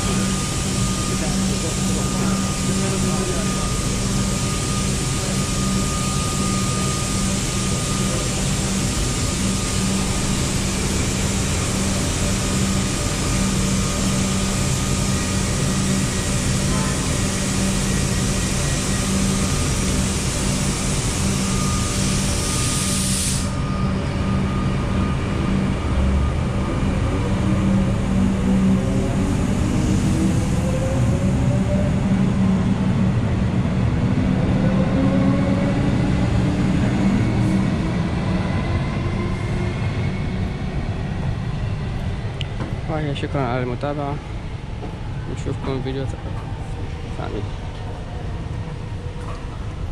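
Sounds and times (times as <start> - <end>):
train hum: 0.0 - 49.9
train whines moving off: 0.0 - 49.9
loud hiss: 21.1 - 23.6.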